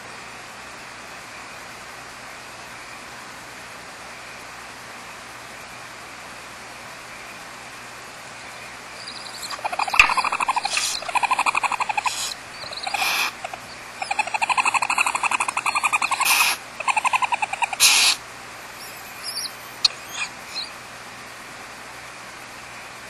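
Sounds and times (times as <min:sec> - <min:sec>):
faint chirps: 0:08.4 - 0:20.9
owls chattering calls: 0:08.9 - 0:20.9
owl harsh hisses: 0:09.0 - 0:20.8.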